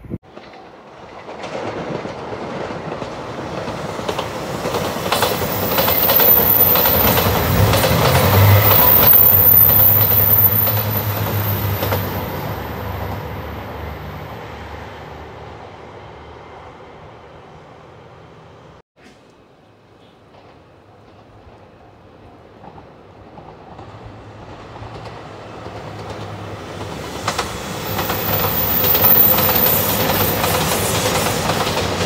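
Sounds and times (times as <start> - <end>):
wheels clacking over rail joints: 0.3 - 13.4, 22.6 - 32.0.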